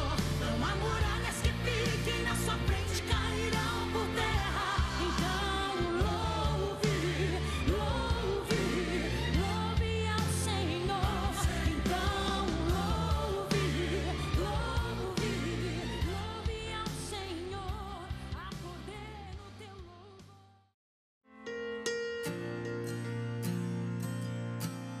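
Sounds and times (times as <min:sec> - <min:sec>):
band with bass and drums: 0:00.0 - 0:19.4
woman singing gospel song: 0:00.0 - 0:20.5.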